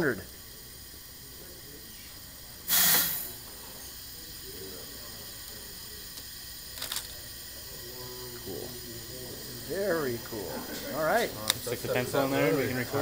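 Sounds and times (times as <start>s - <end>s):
compressed air hissing: 0.0s - 13.0s.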